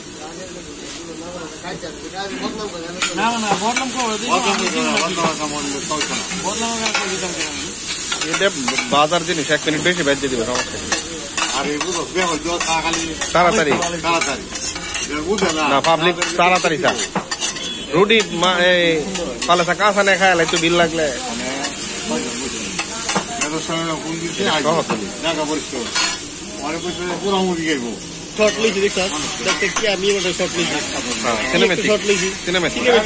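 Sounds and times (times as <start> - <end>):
onion sizzling on griddle: 0.0 - 33.0
steel spatulas scraping and clacking: 14.2 - 18.5, 25.9 - 26.2.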